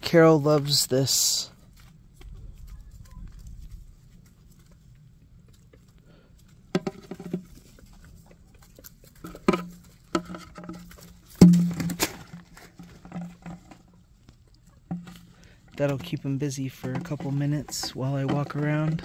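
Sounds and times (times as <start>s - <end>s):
goose pecking plastic bucket: 5.6s - 19.0s.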